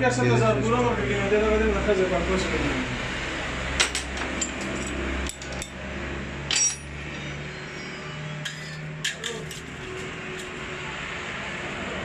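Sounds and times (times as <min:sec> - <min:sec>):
metal parts clinking: 0:06.5 - 0:07.2, 0:08.4 - 0:10.6.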